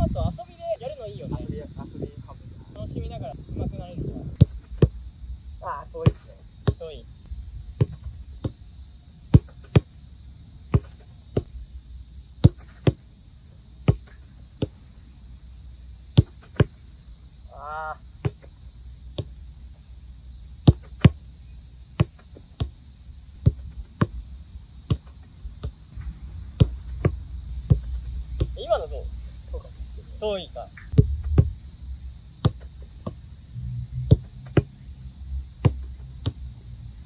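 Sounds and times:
football kicks and traps thudding: 4.2s - 5.0s, 6.0s - 8.7s, 9.3s - 10.0s, 10.7s - 11.6s, 12.4s - 13.0s, 13.8s - 14.9s, 16.2s - 16.8s, 18.2s - 19.4s, 20.6s - 21.3s, 21.9s - 22.8s, 23.4s - 28.7s, 30.8s - 31.6s, 32.4s - 33.2s, 34.1s - 34.7s, 35.6s - 36.4s.

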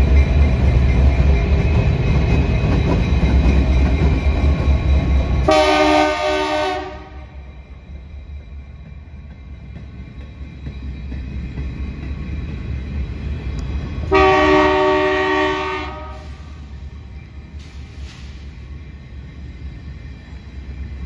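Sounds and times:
diesel locomotive engine rumble: 0.0s - 21.0s
locomotive air horn: 5.5s - 7.3s, 14.1s - 16.6s.

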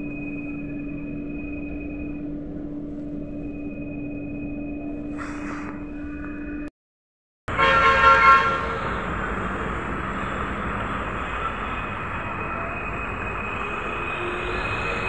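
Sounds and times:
vehicle horn: 7.5s - 8.9s
road traffic noise: 7.5s - 15.0s.

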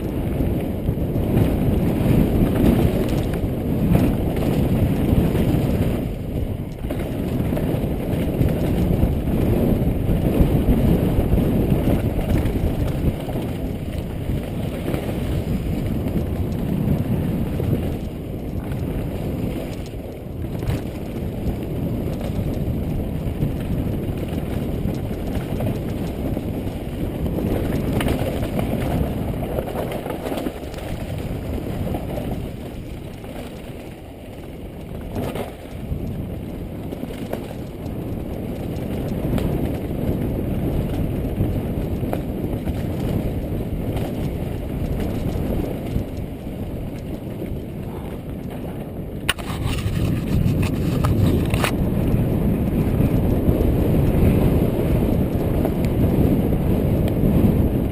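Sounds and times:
bike rattling: 0.0s - 57.8s
bike tyres rumbling on gravel: 0.0s - 57.9s.

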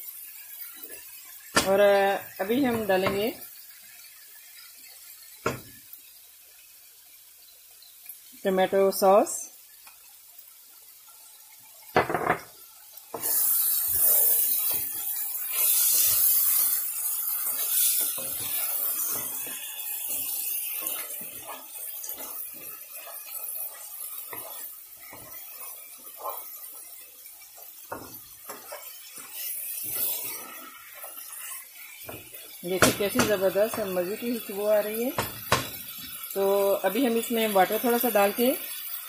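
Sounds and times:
meat sizzling in a pan: 0.0s - 39.0s
wooden spoon scraping a pan: 13.1s - 35.9s.

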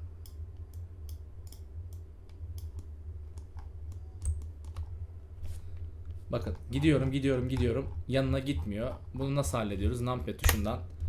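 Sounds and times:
steady low hum: 0.0s - 11.0s
keyboard and mouse clicking: 0.2s - 4.9s.

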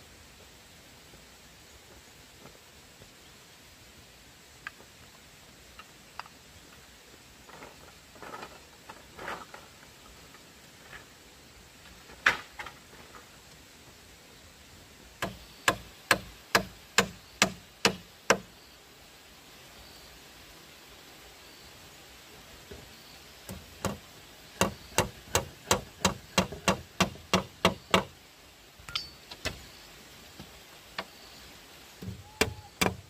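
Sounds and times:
rustling: 5.7s - 14.1s
tool striking bamboo: 15.2s - 18.5s, 23.4s - 24.0s, 24.6s - 28.1s, 28.9s - 29.6s, 32.0s - 33.0s.

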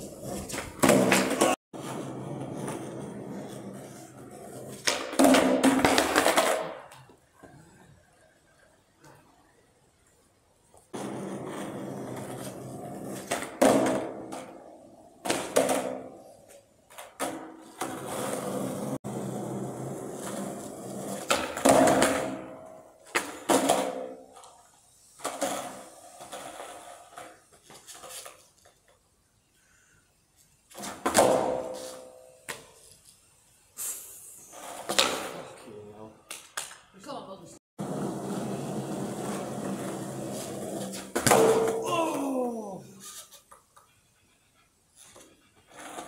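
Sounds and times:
skateboard knocks and clatters: 0.0s - 7.2s, 10.9s - 16.3s, 16.9s - 24.6s, 30.7s - 32.7s, 34.6s - 35.4s, 37.8s - 41.8s
skateboard wheels rolling on concrete: 0.0s - 37.1s, 37.8s - 42.4s, 44.8s - 46.0s.

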